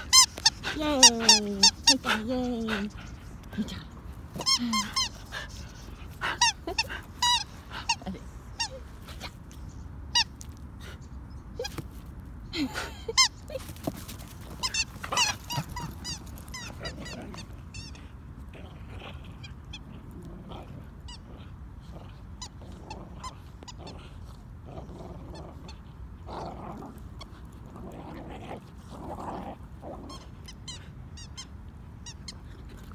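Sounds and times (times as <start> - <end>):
dogs squealing and yelping: 14.5 - 18.0.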